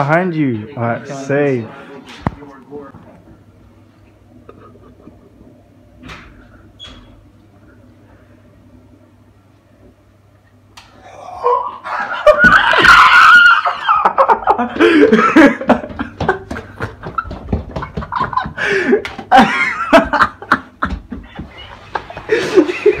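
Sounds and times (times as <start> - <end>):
people laughing hard: 11.4 - 23.0.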